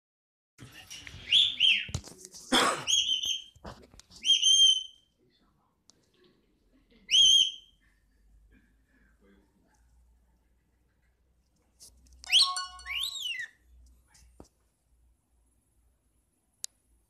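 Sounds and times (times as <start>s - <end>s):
parrot whistling calls: 12.3s - 13.6s.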